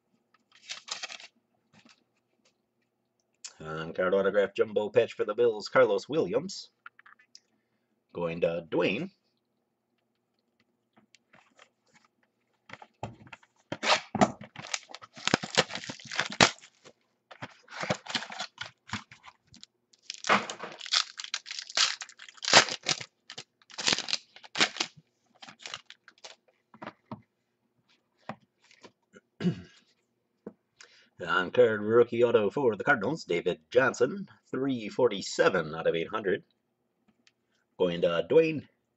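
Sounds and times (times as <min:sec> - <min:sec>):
foil packs tearing and crinkling: 0:00.6 - 0:01.3, 0:13.8 - 0:16.9, 0:17.6 - 0:26.4.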